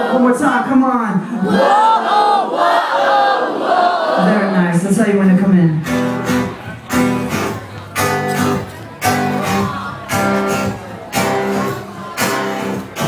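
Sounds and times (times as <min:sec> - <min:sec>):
acoustic guitar strumming chords: 0:05.8 - 0:13.0.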